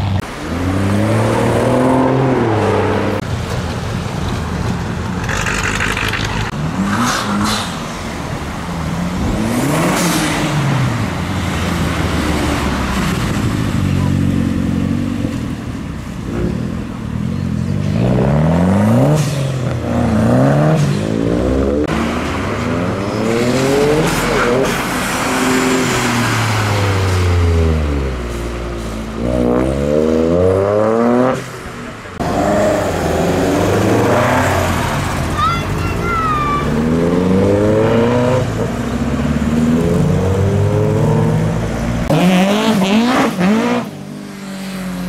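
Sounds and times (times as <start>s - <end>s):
cars accelerating past: 0.0s - 3.2s, 5.2s - 35.5s, 36.6s - 45.0s
engine revving: 36.6s - 44.0s.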